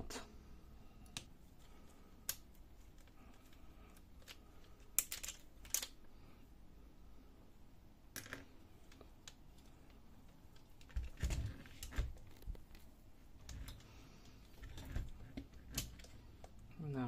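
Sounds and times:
plastic and metal parts clicking: 0:02.2 - 0:06.0, 0:13.4 - 0:16.6.

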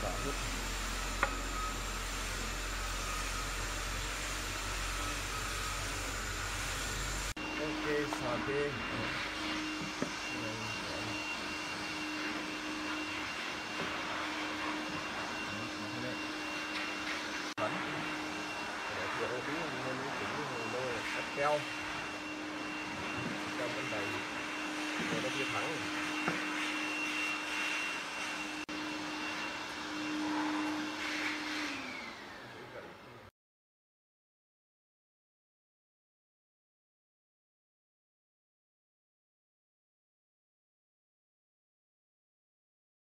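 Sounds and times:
workshop machinery drone: 0:00.0 - 0:33.3.

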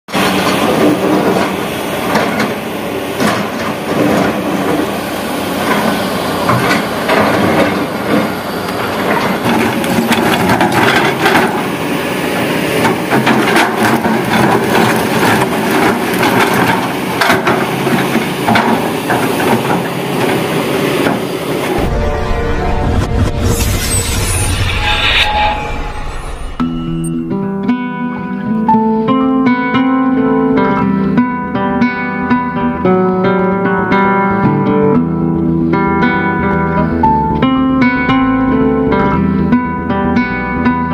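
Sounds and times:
excavator engine running: 0:00.1 - 0:40.9.

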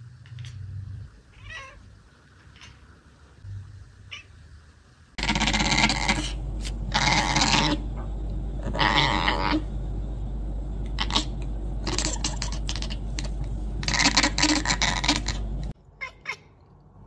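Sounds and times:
cat chattering: 0:02.5 - 0:02.8, 0:05.2 - 0:07.8, 0:08.6 - 0:09.6, 0:10.9 - 0:16.6.

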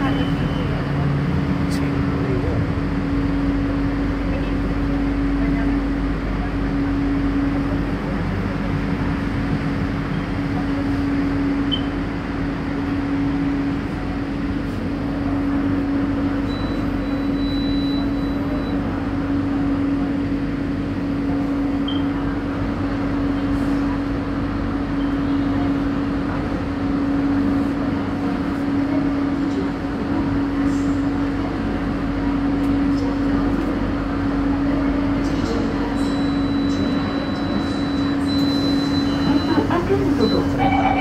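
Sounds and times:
train car ventilation hum: 0:00.0 - 0:41.0
low held tone: 0:11.6 - 0:12.0, 0:16.3 - 0:19.0, 0:35.8 - 0:41.0.

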